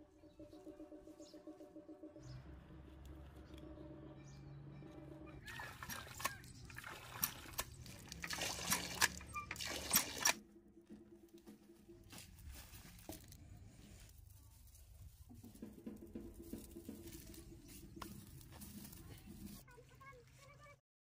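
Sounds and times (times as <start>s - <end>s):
hand pump clicks and knocks: 5.5s - 10.4s
water pouring and splashing into bowl: 5.5s - 10.4s.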